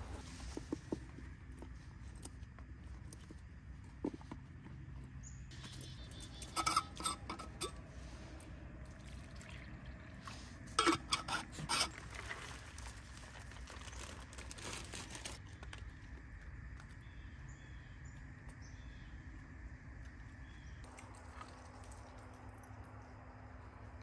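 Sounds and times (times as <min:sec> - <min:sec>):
dog bowls clinking and clattering: 0:05.6 - 0:07.8
water pouring into bowl: 0:08.8 - 0:13.0, 0:20.9 - 0:22.7.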